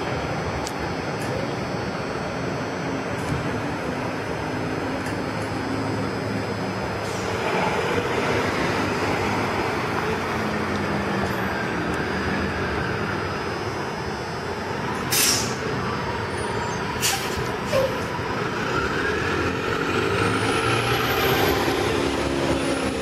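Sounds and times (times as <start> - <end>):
bus engine running: 0.0 - 23.0
air brake hiss: 15.1 - 15.6, 17.0 - 18.0.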